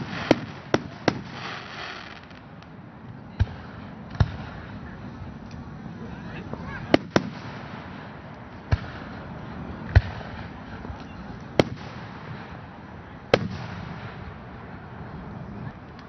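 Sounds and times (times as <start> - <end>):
firework shells bursting: 0.0 - 2.8, 6.9 - 10.6.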